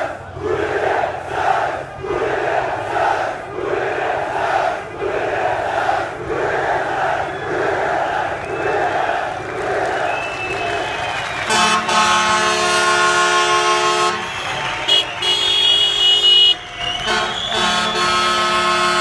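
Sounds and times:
street traffic noise: 0.0s - 19.0s
vehicle horns honking: 11.4s - 19.0s.

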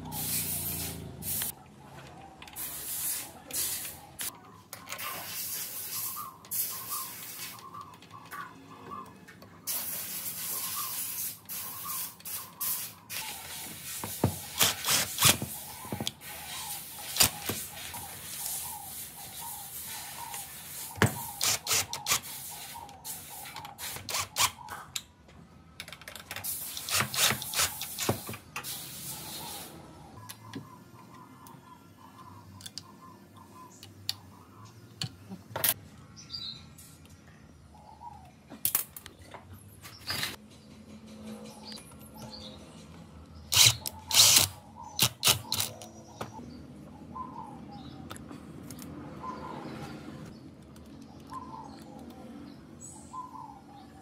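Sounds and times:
bursts of hissing: 0.0s - 1.6s, 2.6s - 4.3s, 5.0s - 7.6s, 9.7s - 24.4s, 26.4s - 29.8s
tools clicking and knocking: 25.8s - 28.7s.

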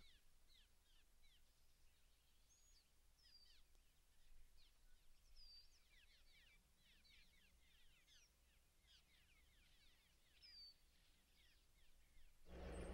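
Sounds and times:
birds chirping: 12.2s - 12.9s
low steady rumble: 12.5s - 12.9s.

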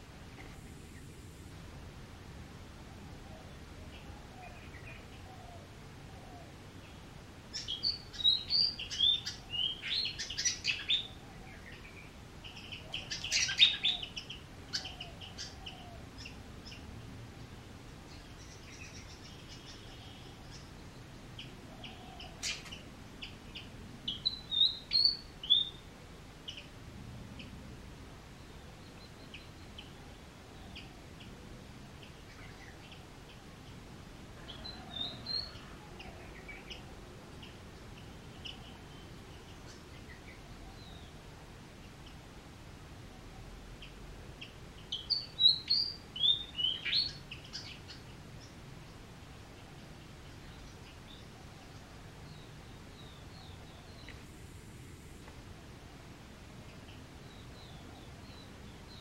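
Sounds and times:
birds chirping: 2.8s - 27.6s, 28.2s - 41.2s, 43.7s - 55.4s.

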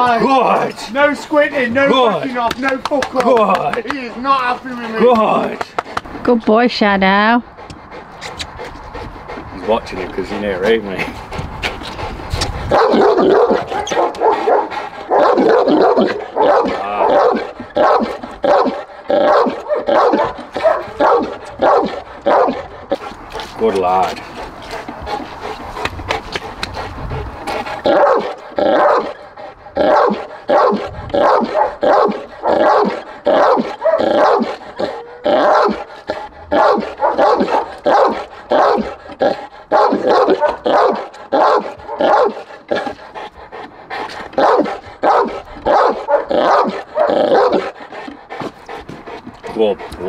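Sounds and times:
dog barking deeply: 12.4s - 24.2s, 27.7s - 43.1s, 44.3s - 47.8s.

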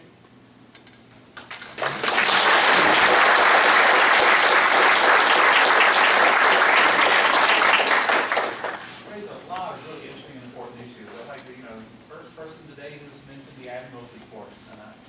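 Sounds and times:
crowd applauding: 1.4s - 9.1s.

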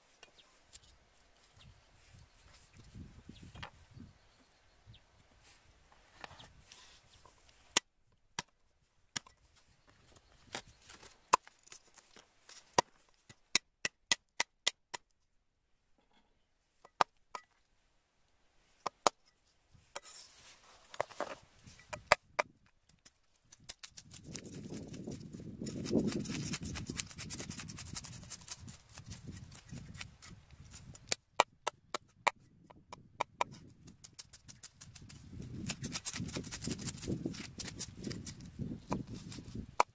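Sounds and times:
rustling: 19.4s - 22.0s.

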